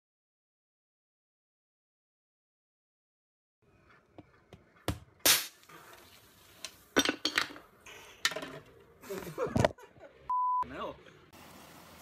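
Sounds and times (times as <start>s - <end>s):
aerosol can bursting with hiss: 5.2s - 5.7s.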